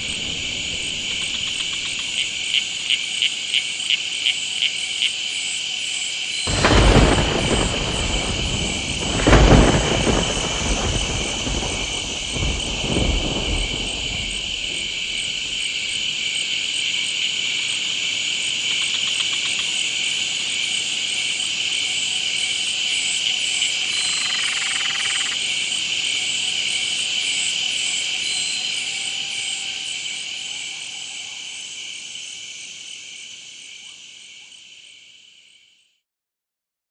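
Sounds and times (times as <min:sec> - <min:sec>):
low rumbles: 0:00.0 - 0:02.4, 0:06.5 - 0:16.1
insect chorus pulsing drone: 0:00.0 - 0:36.0.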